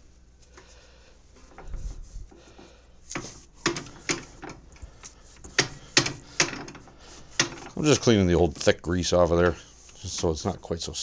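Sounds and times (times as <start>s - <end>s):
sharp metal clicks and knocks: 3.1s - 8.2s.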